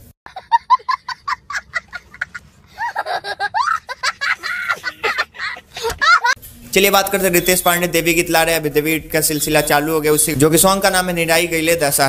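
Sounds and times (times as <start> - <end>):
child laughing: 0.3 - 6.4.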